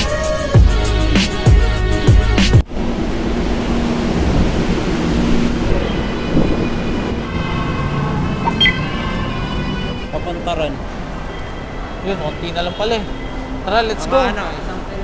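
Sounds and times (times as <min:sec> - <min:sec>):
hip-hop beat: 0:00.0 - 0:02.6.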